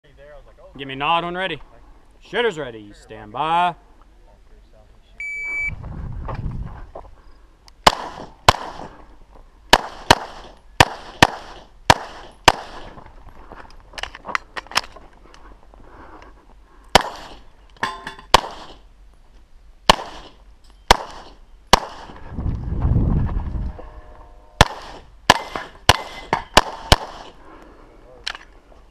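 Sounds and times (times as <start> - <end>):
pistol shots: 7.8 - 9.0, 9.7 - 13.0, 16.9 - 17.4, 18.3 - 18.8, 19.9 - 22.2, 24.6 - 27.4.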